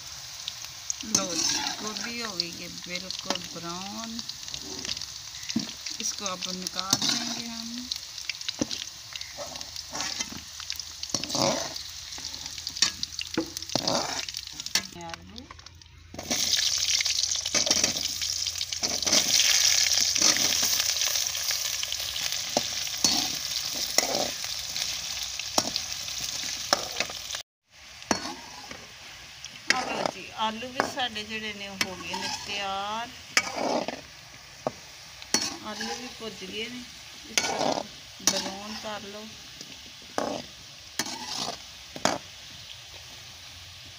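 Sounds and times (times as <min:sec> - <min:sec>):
food deep-frying in hot oil: 0:00.0 - 0:43.9
metal spoon scraping a pan: 0:01.0 - 0:03.6, 0:04.5 - 0:10.4, 0:11.1 - 0:15.0, 0:16.2 - 0:18.2, 0:18.8 - 0:21.2, 0:22.0 - 0:24.9, 0:25.6 - 0:27.2, 0:28.1 - 0:28.9, 0:29.7 - 0:36.6, 0:37.3 - 0:42.3.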